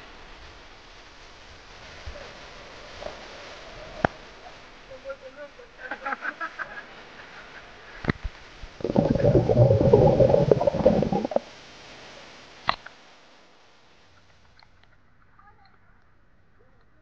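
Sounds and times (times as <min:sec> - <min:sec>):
water rushing and bubbling: 0:08.8 - 0:11.5.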